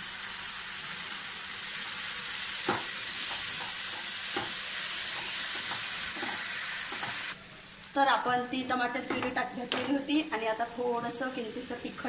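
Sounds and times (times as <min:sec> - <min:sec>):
sauce sizzling in hot oil: 0:00.0 - 0:12.0
spatula scraping a pan: 0:02.7 - 0:07.4.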